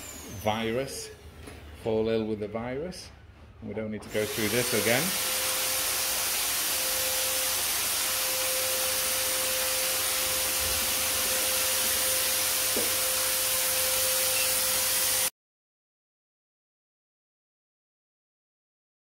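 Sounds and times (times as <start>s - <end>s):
fogger motor whine and hiss: 4.1s - 15.3s.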